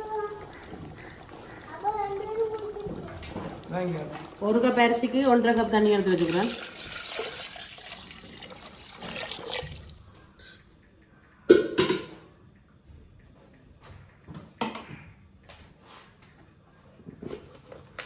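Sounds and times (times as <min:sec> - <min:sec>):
water pouring into a pot: 0:00.0 - 0:10.7.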